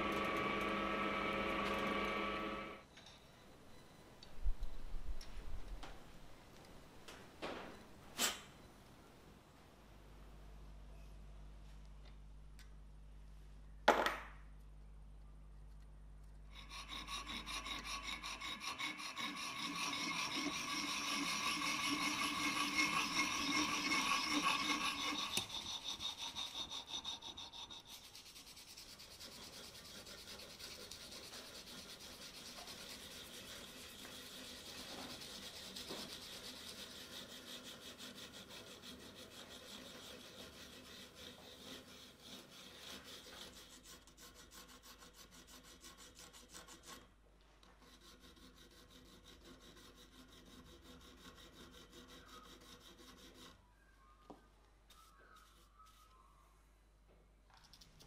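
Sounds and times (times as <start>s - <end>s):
file rasping on metal: 16.5s - 53.6s.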